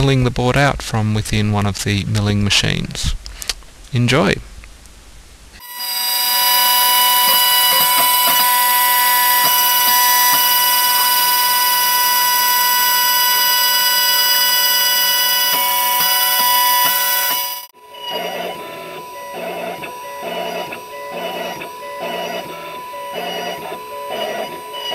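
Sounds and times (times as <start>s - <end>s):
milling spindle motor whine: 5.6s - 24.9s.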